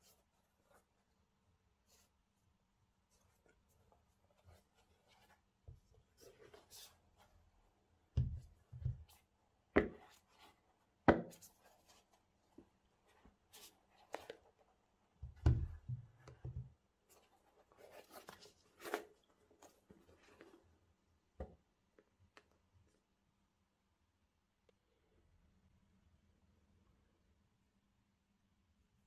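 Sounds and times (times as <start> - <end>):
sharp knocks and dull thumps: 8.2 - 9.2, 9.8 - 10.1, 15.2 - 16.8
sneakers rubbing and rustling: 15.4 - 20.6.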